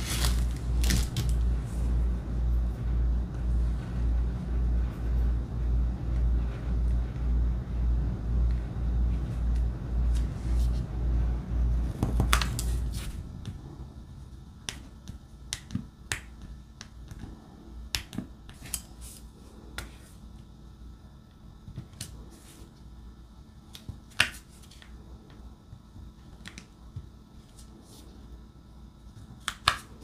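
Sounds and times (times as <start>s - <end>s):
low pulsing rumble: 0.0s - 17.5s.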